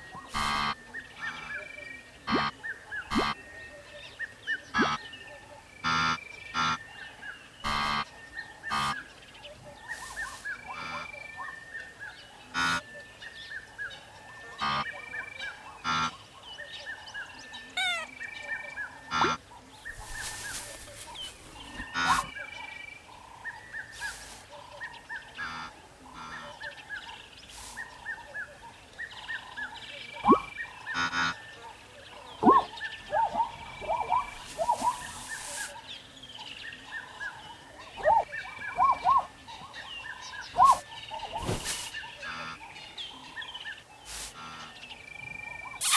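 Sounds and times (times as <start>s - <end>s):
wildebeest honking grunts: 0.3s - 1.6s, 5.8s - 6.8s, 10.7s - 11.2s, 12.5s - 12.8s, 14.6s - 15.0s, 15.8s - 16.2s, 17.8s - 18.2s, 19.1s - 19.4s, 21.2s - 22.4s, 25.4s - 26.7s, 30.3s - 31.4s, 42.2s - 42.7s
small high chirps: 17.8s - 18.2s.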